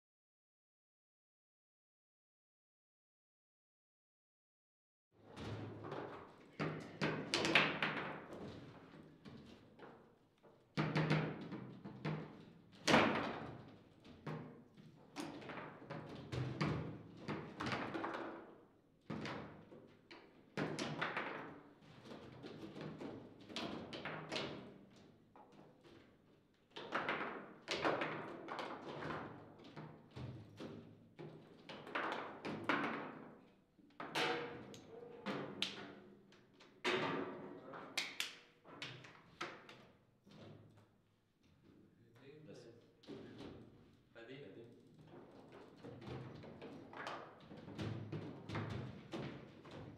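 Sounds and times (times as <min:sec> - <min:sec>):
foosball knocks and bangs: 0:34.0 - 0:34.8.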